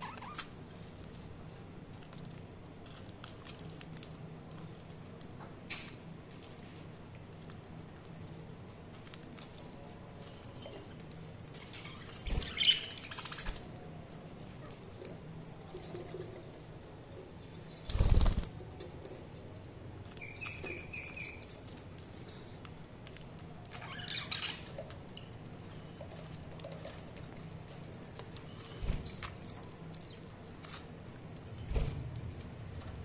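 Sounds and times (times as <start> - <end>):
bird wing flapping: 17.8 - 18.6.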